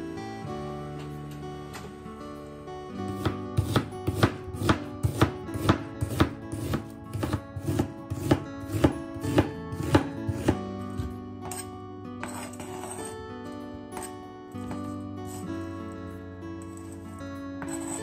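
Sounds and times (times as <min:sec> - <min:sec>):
knife chopping on cutting board: 0:03.1 - 0:11.6.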